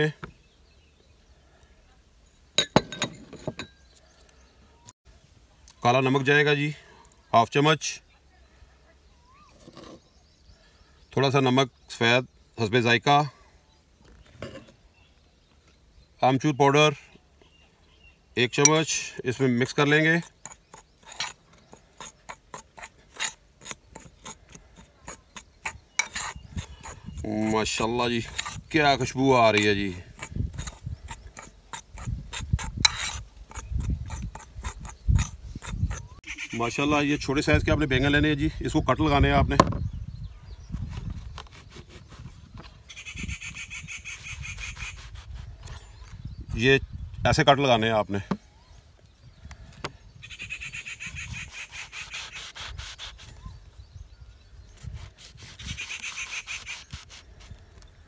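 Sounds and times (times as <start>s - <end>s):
metal spoon scraping clay bowl: 2.3s - 4.1s, 9.5s - 10.2s, 14.4s - 14.8s, 18.6s - 36.2s
knife sawing through vegetable: 19.8s - 36.2s, 40.8s - 42.4s, 43.9s - 45.8s, 51.0s - 53.4s, 54.8s - 57.6s.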